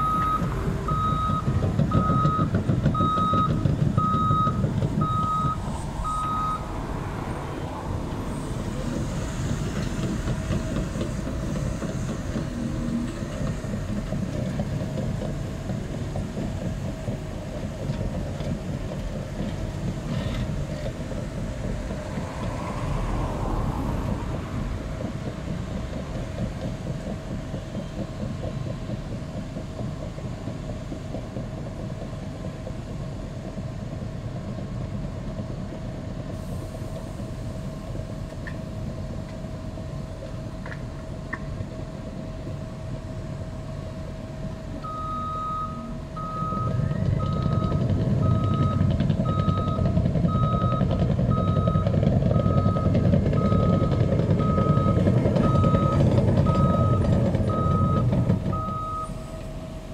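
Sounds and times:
reversing alarm beeping: 0.0 - 6.7, 44.8 - 59.4
dozer diesel engine running: 0.0 - 59.9.

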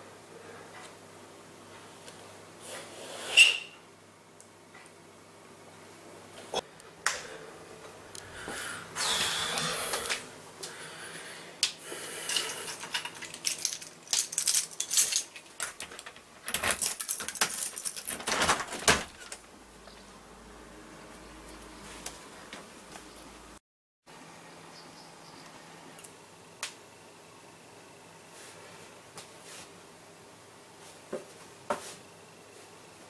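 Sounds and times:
person handling things: 12.2 - 19.4
keys jangling: 12.3 - 18.3.

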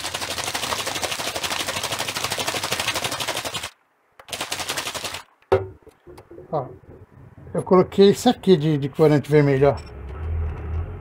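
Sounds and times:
paint sloshing in shaken bottle: 0.0 - 5.3.

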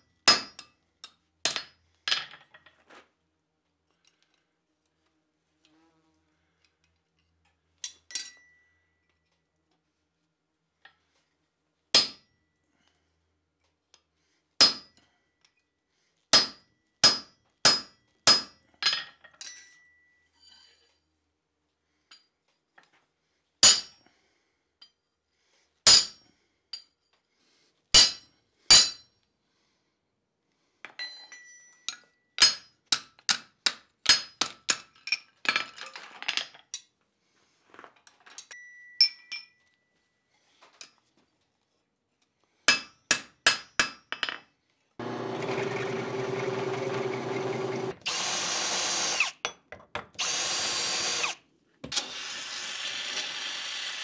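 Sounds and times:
power drill boring steel: 45.0 - 49.4, 50.2 - 54.0.

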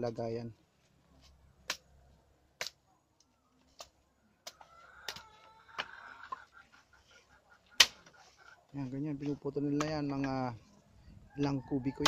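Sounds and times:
blade chopping wooden poles: 7.8 - 8.2.

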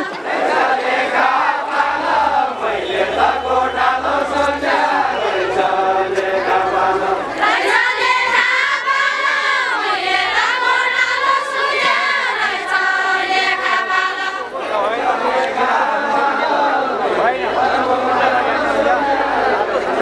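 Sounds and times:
women singing folk song in unison: 0.0 - 14.5.

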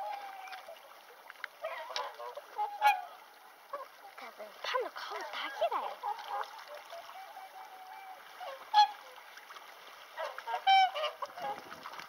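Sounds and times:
swans honking: 1.6 - 9.4, 10.1 - 11.7.

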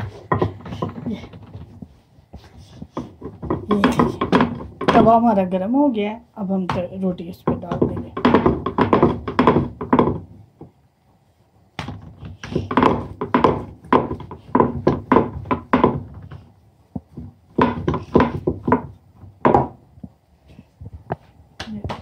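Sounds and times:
rolling pin knocking on board: 3.0 - 5.3, 6.7 - 10.7, 11.8 - 16.4, 17.0 - 19.8.

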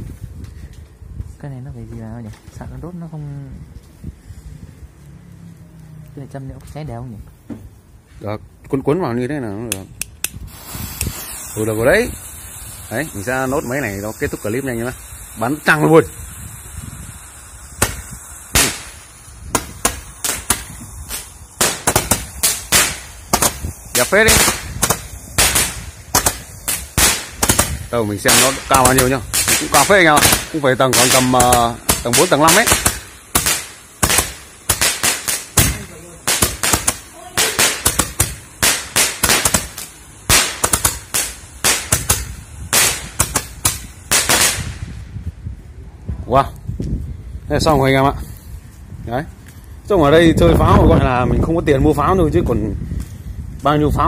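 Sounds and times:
fireworks bangs: 10.3 - 45.2.

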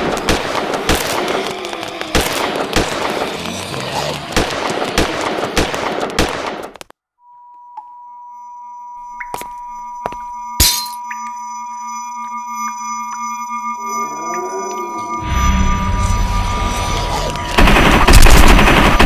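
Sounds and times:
rapid gunfire: 0.0 - 6.8, 17.6 - 19.0
high-pitched pure tone: 8.1 - 17.6.

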